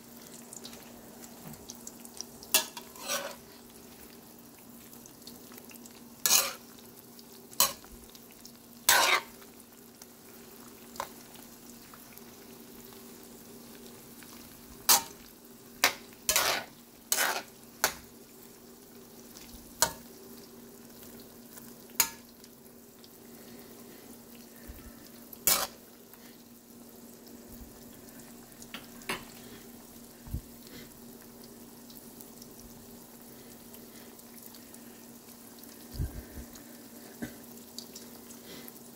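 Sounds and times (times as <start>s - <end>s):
food sizzling in oil: 0.0s - 38.9s
metal spatula scraping a wok: 2.6s - 3.5s, 6.2s - 6.6s, 8.9s - 9.4s, 15.8s - 18.0s, 25.4s - 25.8s.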